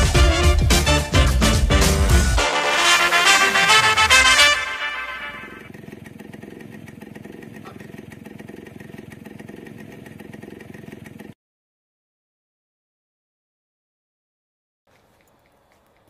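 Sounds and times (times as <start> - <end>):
background music: 0.0 - 5.7
engine idling: 3.2 - 11.4.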